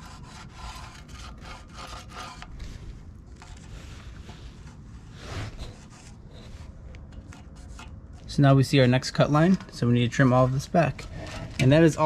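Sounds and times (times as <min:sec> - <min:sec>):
marker scraping on steel: 0:00.0 - 0:02.6, 0:03.4 - 0:08.5.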